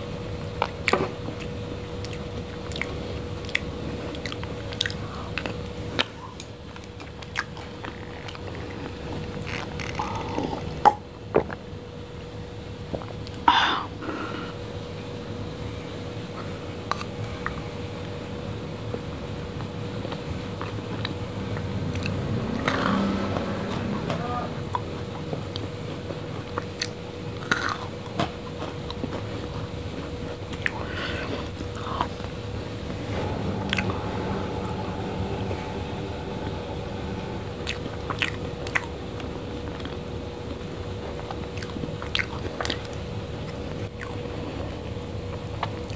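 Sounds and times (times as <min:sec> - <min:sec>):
faint steady hum: 0:00.0 - 0:45.9
soft chewing and mouth clicks: 0:00.6 - 0:11.6, 0:16.9 - 0:17.6, 0:26.3 - 0:32.4, 0:37.6 - 0:45.9.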